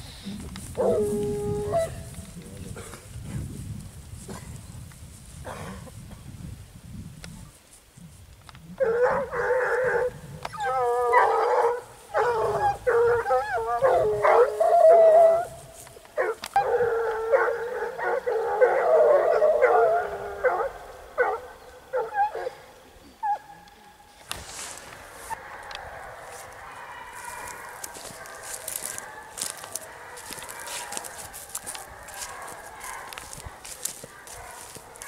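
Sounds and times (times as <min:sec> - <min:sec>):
hounds baying: 0:00.8 - 0:02.2, 0:08.8 - 0:23.6, 0:25.2 - 0:35.0.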